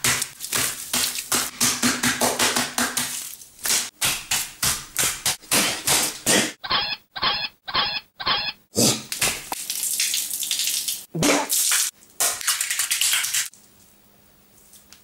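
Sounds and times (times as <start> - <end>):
wet slaps on tiled floor: 0.0 - 6.4.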